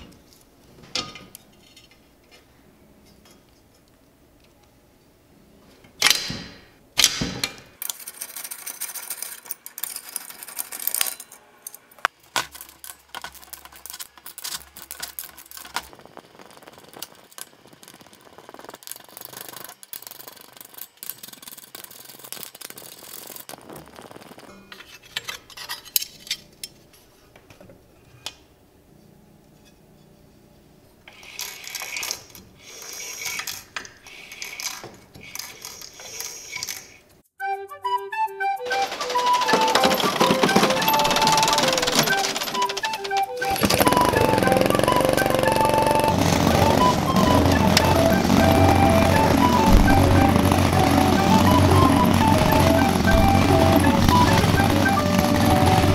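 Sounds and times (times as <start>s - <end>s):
metal tool clatter: 24.6s - 26.8s.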